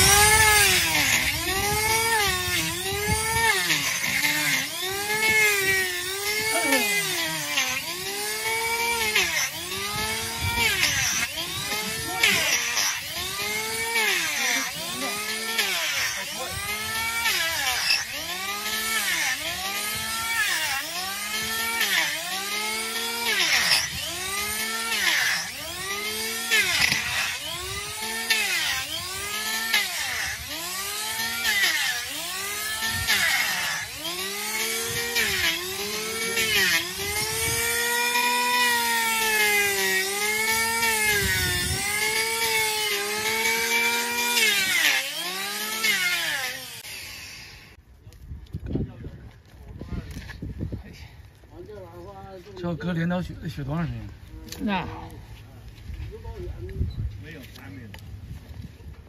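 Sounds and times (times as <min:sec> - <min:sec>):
electric planer motor whine: 0:00.0 - 0:47.8.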